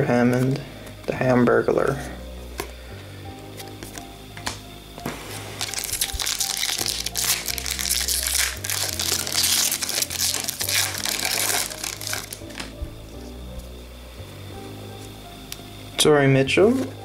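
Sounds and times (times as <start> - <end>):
background music: 0.0 - 17.0
wrapper crinkling and tearing: 5.5 - 12.8.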